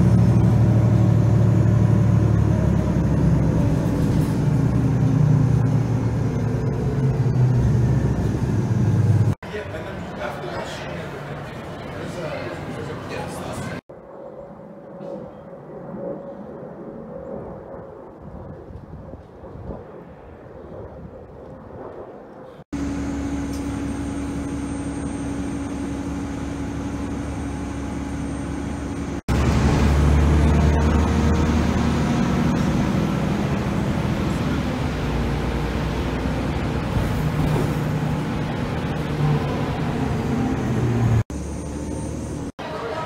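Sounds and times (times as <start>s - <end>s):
vehicle ride rumble from cabin: 0.0s - 13.8s, 22.6s - 43.0s.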